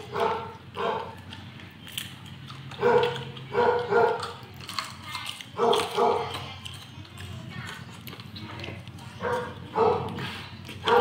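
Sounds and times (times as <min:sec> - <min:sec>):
dog barking: 0:00.0 - 0:01.2, 0:02.7 - 0:04.4, 0:05.6 - 0:06.4, 0:09.2 - 0:11.0.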